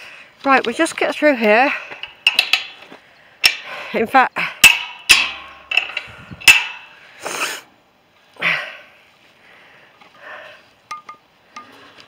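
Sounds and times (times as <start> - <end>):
wooden gate and metal latch clanking: 1.9 - 3.7, 4.6 - 7.0.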